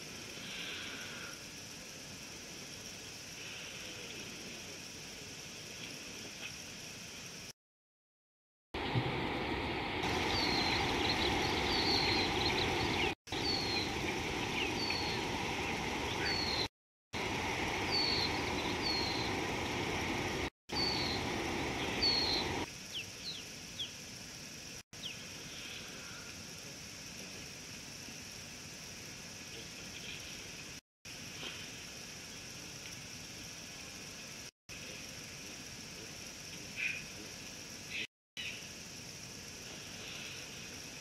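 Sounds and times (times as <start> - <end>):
faint outdoor ambience: 0.0 - 7.6, 8.8 - 41.0
birds chirping: 10.0 - 16.7, 17.5 - 23.9.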